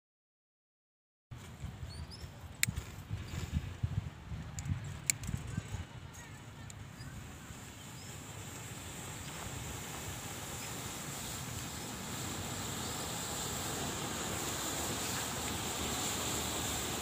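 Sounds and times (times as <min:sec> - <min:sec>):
matchsticks burning with rushing hiss: 0:02.4 - 0:17.0.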